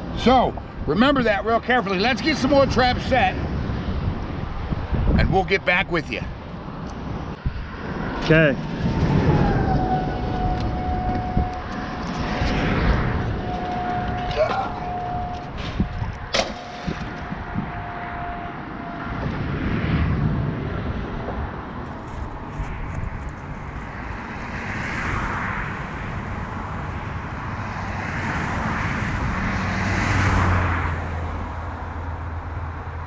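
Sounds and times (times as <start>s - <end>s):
outdoor noise: 0.0s - 33.0s
road traffic passing: 0.0s - 33.0s
trap splashing into water: 16.3s - 17.0s.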